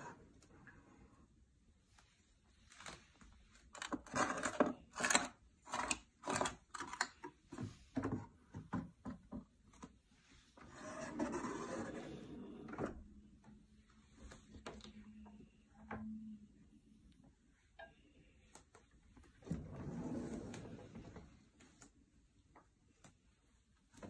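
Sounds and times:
drawer sliding on runners: 10.6s - 13.0s, 19.4s - 21.4s.

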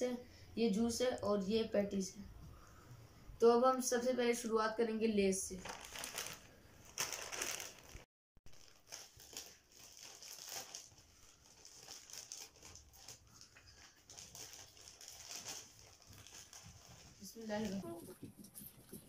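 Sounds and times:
plastic chip bag crinkling: 5.6s - 18.1s.

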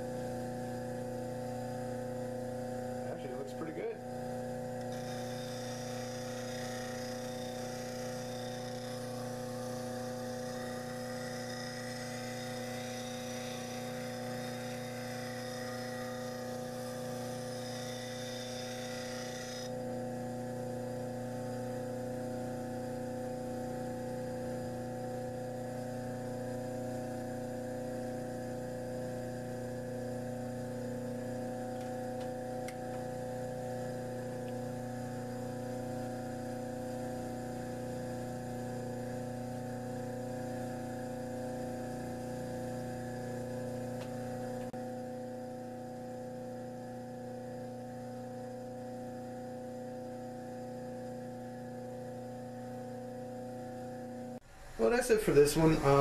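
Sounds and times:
motor humming: 0.0s - 24.9s
metal grinding on sanding disc: 4.9s - 19.8s.

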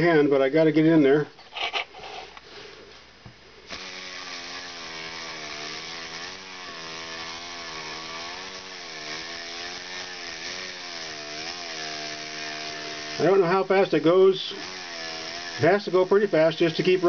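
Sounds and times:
model engine buzzing: 3.7s - 13.7s, 14.5s - 17.0s.

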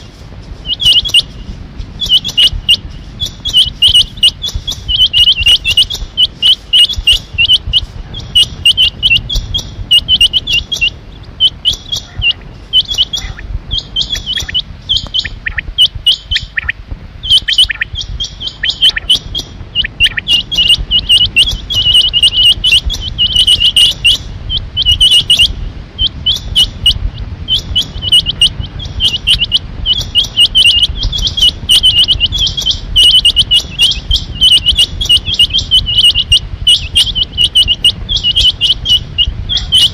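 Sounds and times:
quail calling sharp notes: 0.0s - 39.9s.

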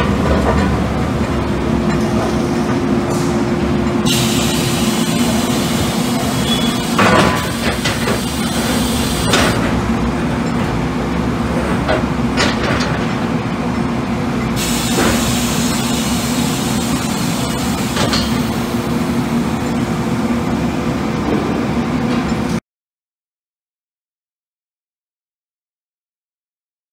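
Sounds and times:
industrial machinery hum: 0.0s - 22.6s.

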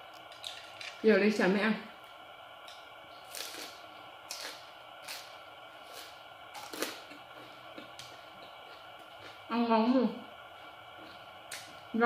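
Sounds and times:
person chewing crusty bread: 3.2s - 9.4s.

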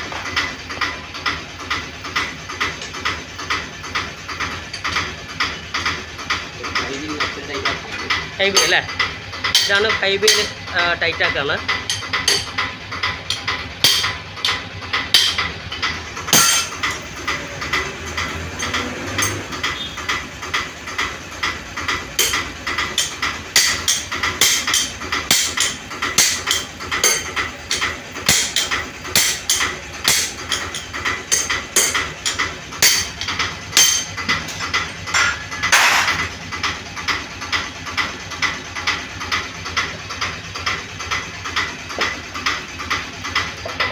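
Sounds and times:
hammer striking metal spanner: 3.5s - 10.6s, 11.7s - 36.3s.

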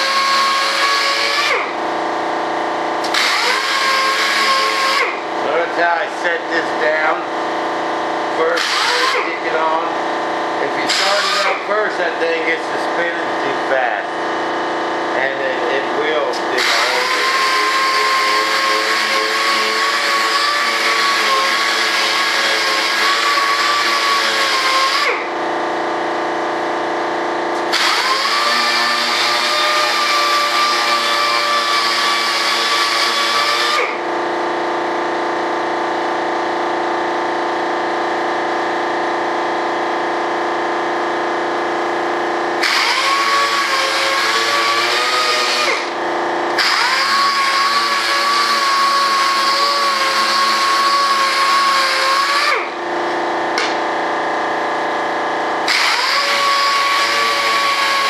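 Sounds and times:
orbital sander whine: 0.0s - 58.0s.

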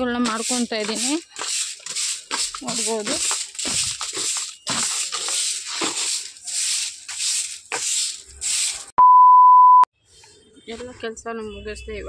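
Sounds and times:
broom sweeping cement floor: 0.0s - 8.9s
steady beep: 9.0s - 9.9s.

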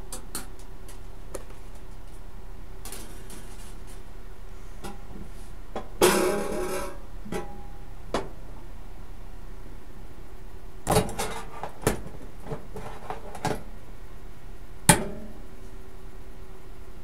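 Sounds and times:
steady low hum: 0.0s - 17.0s
metal parts being handled: 2.8s - 4.1s.

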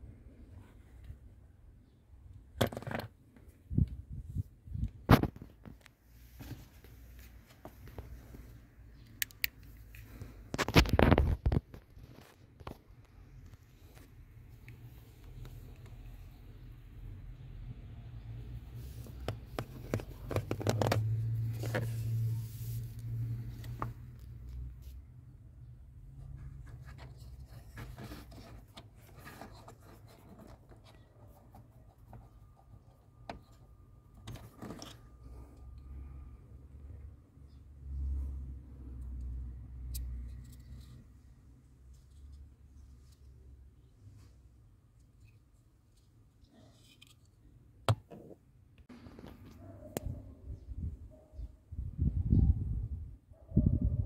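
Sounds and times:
plastic clattering and rustling: 19.1s - 22.0s, 34.2s - 35.3s
rubbing against plastic trim: 26.2s - 32.9s.

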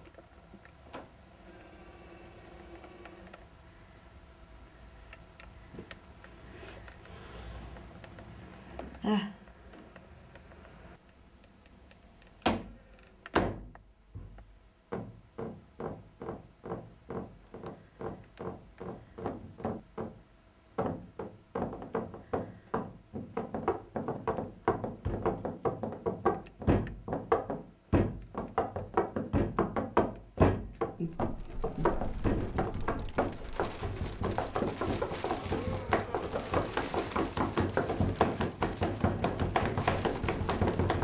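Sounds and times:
rhythmic drumming: 31.0s - 41.0s.

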